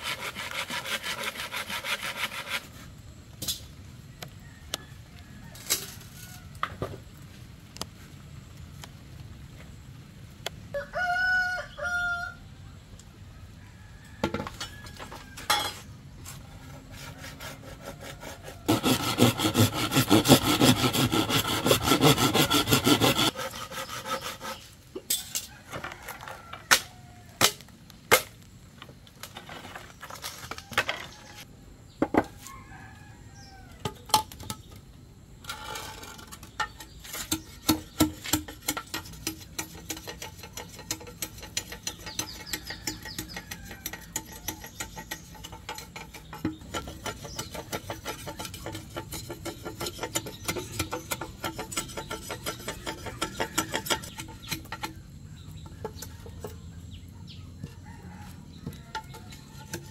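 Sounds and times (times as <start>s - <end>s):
hand saw cutting bamboo: 0.0s - 2.8s, 16.7s - 24.8s, 37.0s - 55.0s.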